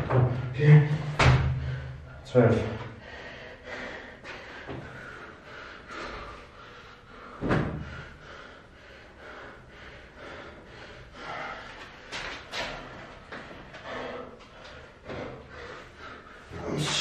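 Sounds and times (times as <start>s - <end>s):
thump on exercise mat: 1.2s - 1.6s, 7.4s - 7.8s
man breathing hard: 1.4s - 17.0s.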